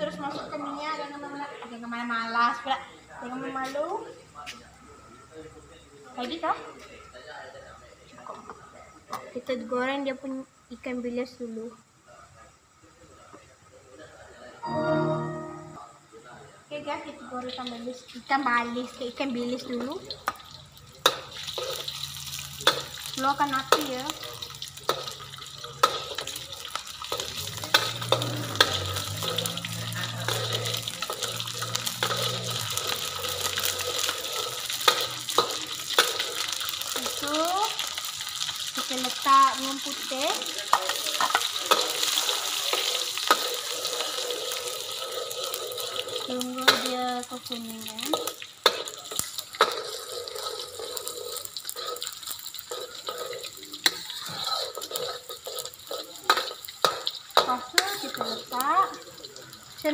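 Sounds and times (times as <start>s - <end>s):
fish sizzling in hot oil: 17.3s - 59.9s
spatula clacking against wok: 21.0s - 22.0s, 22.6s - 23.1s, 24.8s - 36.6s, 40.7s - 43.7s, 46.6s - 46.9s, 48.1s - 58.2s
metal spatula scraping wok: 25.8s - 37.3s, 37.9s - 46.9s, 48.1s - 58.6s.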